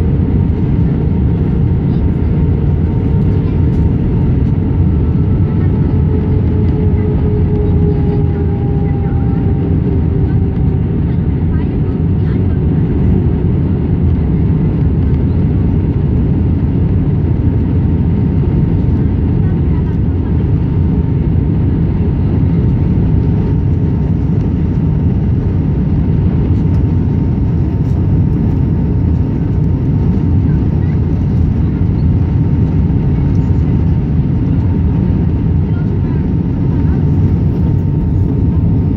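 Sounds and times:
airliner cabin engine and airflow roar: 0:00.0 - 0:38.9.

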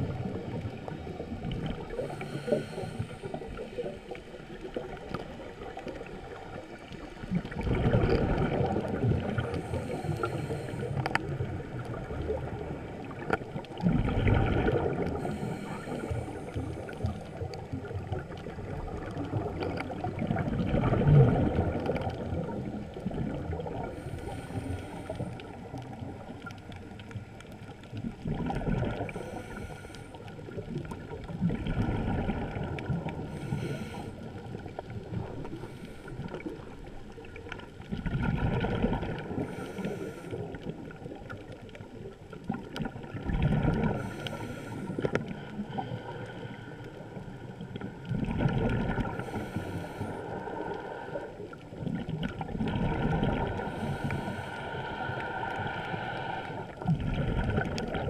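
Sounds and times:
exhaled bubbles rushing: 0:00.0 - 0:29.6, 0:30.3 - 0:45.9, 0:47.2 - 0:54.4, 0:56.4 - 0:58.0
regulator inhale hiss: 0:01.8 - 0:04.3, 0:09.3 - 0:11.5, 0:15.1 - 0:17.5, 0:23.8 - 0:25.7, 0:29.0 - 0:30.6, 0:33.1 - 0:34.8, 0:35.4 - 0:36.8, 0:39.3 - 0:41.0, 0:43.8 - 0:47.0, 0:49.0 - 0:51.5, 0:53.4 - 0:56.8.

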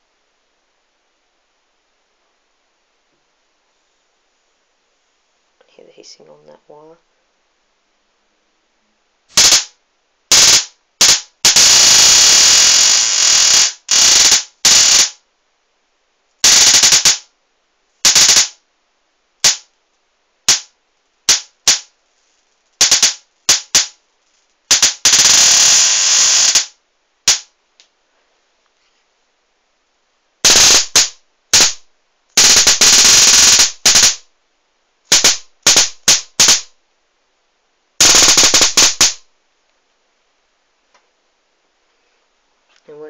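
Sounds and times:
high-voltage arc crackling: 0:09.3 - 0:15.2, 0:16.4 - 0:17.3, 0:18.0 - 0:18.6, 0:19.4 - 0:19.8, 0:20.5 - 0:27.5, 0:30.4 - 0:34.3, 0:35.1 - 0:36.7, 0:38.0 - 0:39.3.

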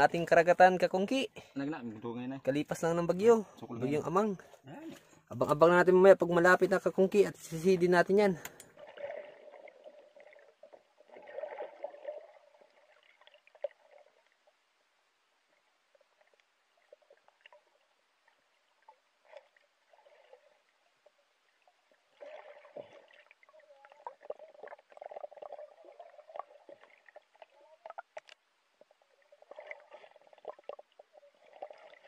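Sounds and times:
water sloshing and gurgling: 0:00.0 - 0:32.0
underwater clicks: 0:08.3 - 0:08.8, 0:27.8 - 0:28.9.

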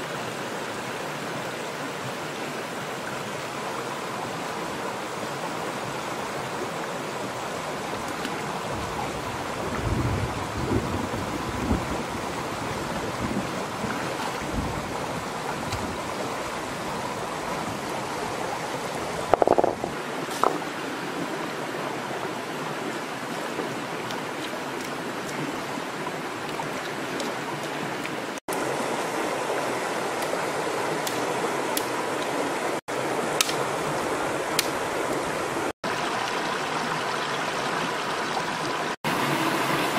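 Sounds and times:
stream rushing over rocks: 0:00.0 - 0:39.9
low thumps: 0:19.3 - 0:19.9.

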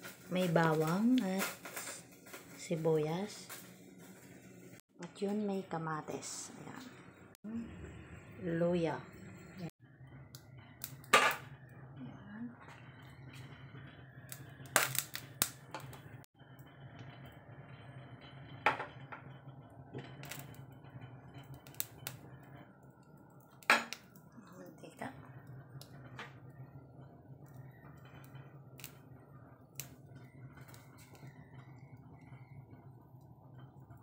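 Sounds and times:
low steady hum: 0:00.0 - 0:34.0.

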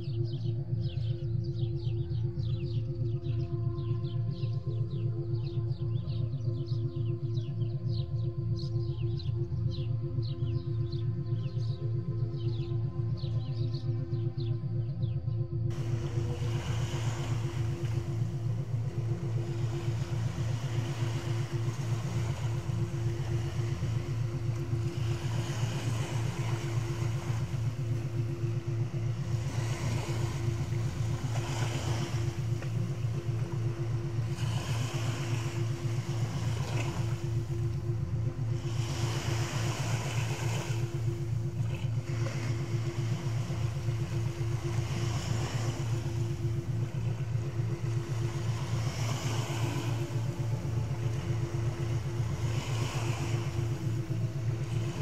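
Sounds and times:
low droning meditation tone: 0:00.0 - 0:55.0
sea waves washing onto shore: 0:15.7 - 0:55.0.

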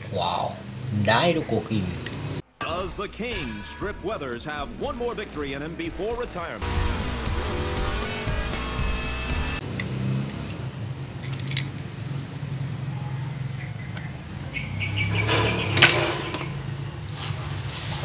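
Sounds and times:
toy cars clicking and clattering: 0:11.2 - 0:11.8.

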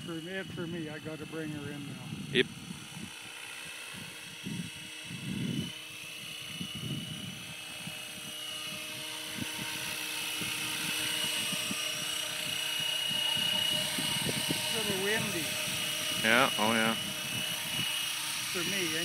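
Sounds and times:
rc helicopter rotor whine: 0:00.0 - 0:19.0
wind buffeting microphone: 0:00.0 - 0:19.0.

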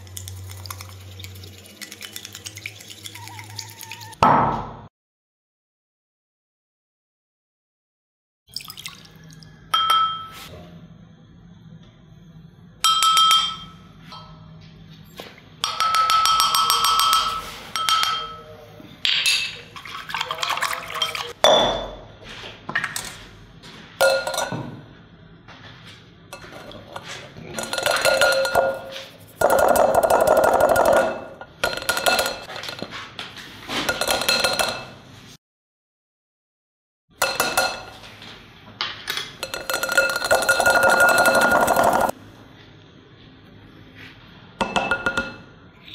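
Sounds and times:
kitchenware clinking: 0:09.7 - 0:10.4, 0:12.8 - 0:14.5, 0:15.6 - 0:22.1, 0:24.0 - 0:24.8, 0:26.3 - 0:32.9, 0:33.7 - 0:35.0, 0:37.2 - 0:38.2, 0:39.0 - 0:42.2, 0:44.6 - 0:45.5.

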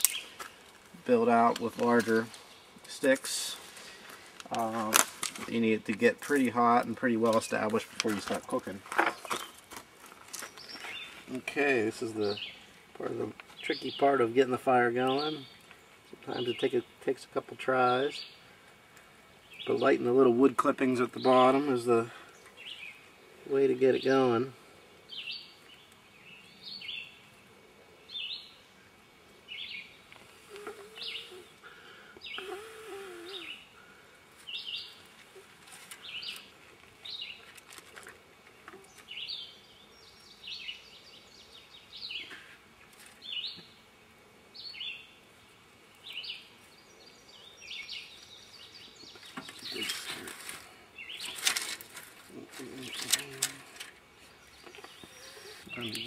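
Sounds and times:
songbird calling: 0:00.0 - 0:00.6, 0:10.4 - 0:14.3, 0:14.9 - 0:17.1, 0:17.9 - 0:37.5, 0:38.7 - 0:43.8, 0:44.5 - 0:45.2, 0:46.0 - 0:51.6, 0:52.3 - 0:56.0
sticks rustling in fire: 0:00.0 - 0:11.4, 0:34.3 - 0:39.1, 0:49.1 - 0:56.0.

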